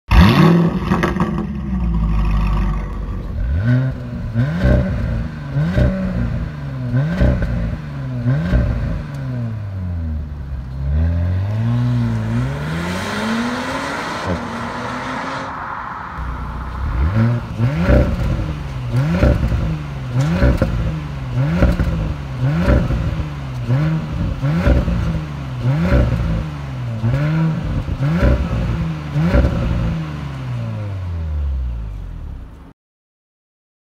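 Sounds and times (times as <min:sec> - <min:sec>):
car engine revving: 0:00.1 - 0:31.7
steady rushing sound: 0:11.7 - 0:20.2.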